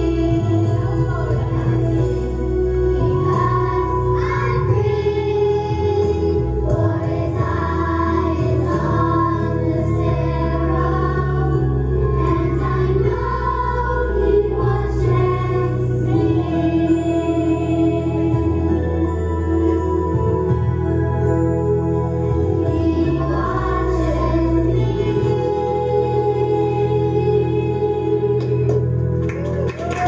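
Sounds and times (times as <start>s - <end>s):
children's choir singing: 0.0s - 19.3s, 22.4s - 28.6s
steady bass notes: 0.0s - 30.0s.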